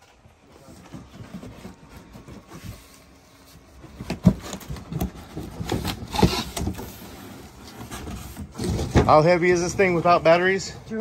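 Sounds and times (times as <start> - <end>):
knocks and clatter of heavy enclosure: 3.8 - 7.0, 7.6 - 11.0.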